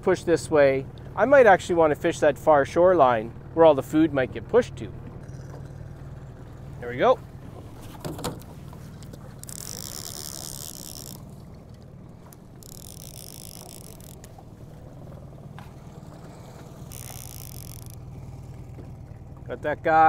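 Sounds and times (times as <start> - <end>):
outboard motor running: 0.0 - 20.0
fishing reel ratcheting whir: 5.2 - 6.1, 9.0 - 14.8, 15.9 - 18.6.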